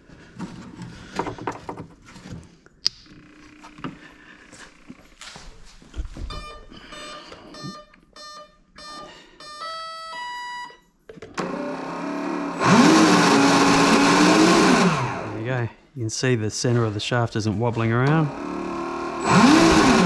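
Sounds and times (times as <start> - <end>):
longer electronic tones: 6.3 - 10.8
short electronic beeps: 6.3 - 10.8
electric motor whirring: 11.4 - 15.4, 18.0 - 20.0.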